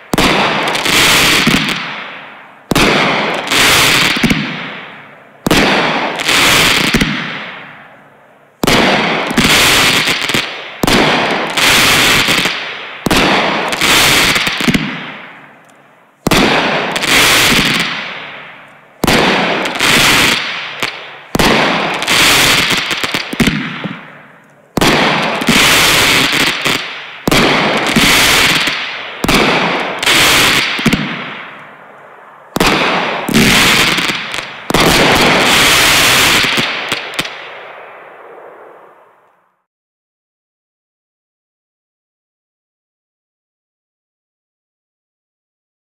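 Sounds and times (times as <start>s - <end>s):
firework bangs with crackling: 0.0s - 7.9s, 8.6s - 15.6s, 16.2s - 31.8s, 32.5s - 38.8s.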